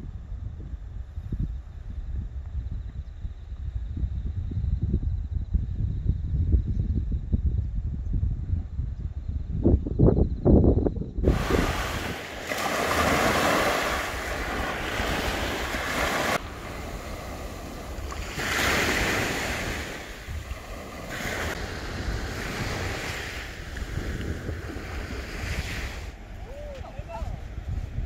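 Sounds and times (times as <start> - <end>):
wind rumbling on microphone: 0.0 - 28.0
small waves washing on beach: 11.2 - 27.6.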